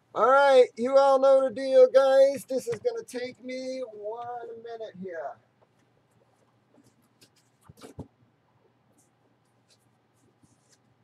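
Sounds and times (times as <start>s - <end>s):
soft handling clicks and scrapes: 5.6s - 11.0s.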